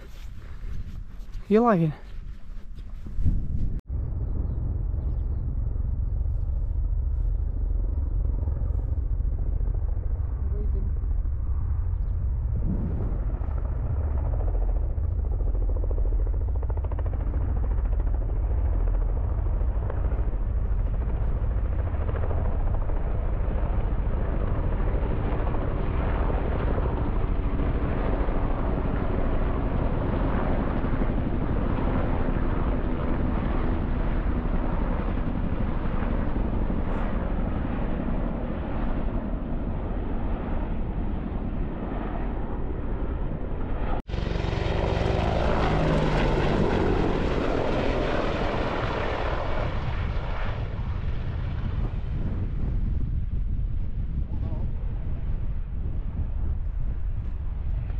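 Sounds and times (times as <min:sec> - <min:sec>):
helicopters passing over: 0:03.9 - 0:57.9.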